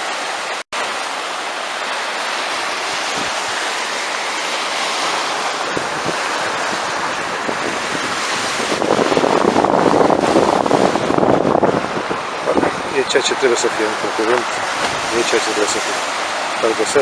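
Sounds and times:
sea waves washing on beach: 0.0s - 17.0s
wind on microphone: 2.4s - 17.0s.

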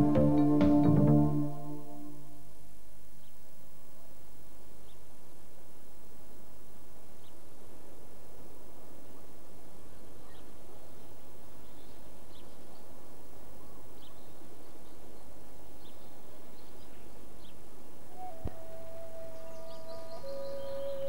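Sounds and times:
held musical tone: 0.0s - 2.4s
steady low background noise: 0.0s - 21.0s.

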